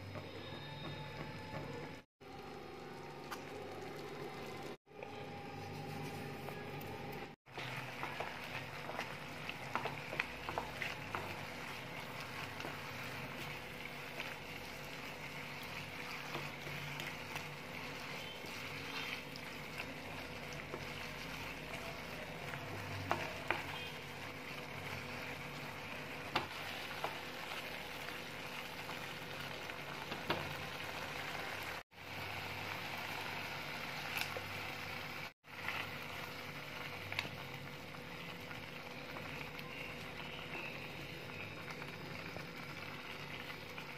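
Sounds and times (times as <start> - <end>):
prawns sizzling in a pan: 7.5 - 43.9.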